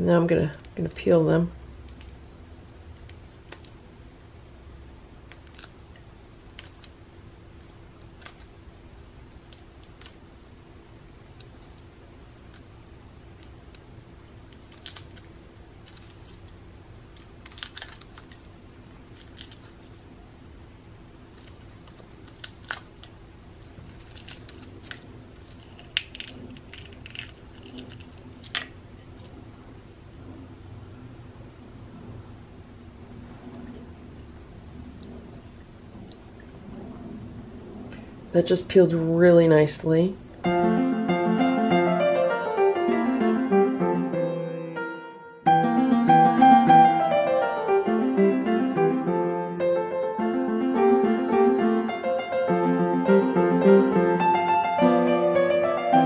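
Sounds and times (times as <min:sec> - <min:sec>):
eggshell crackling: 0:01.8 - 0:03.9, 0:05.2 - 0:20.1, 0:21.2 - 0:29.5.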